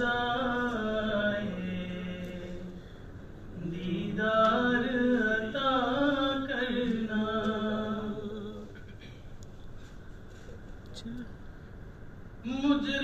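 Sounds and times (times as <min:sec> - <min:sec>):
man singing unaccompanied: 0:00.0 - 0:02.8, 0:03.6 - 0:08.7, 0:12.4 - 0:13.0.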